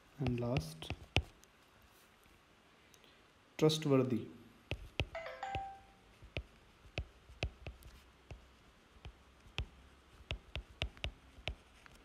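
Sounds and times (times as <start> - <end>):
stylus tapping on glass screen: 4.7 - 8.4, 10.3 - 11.6.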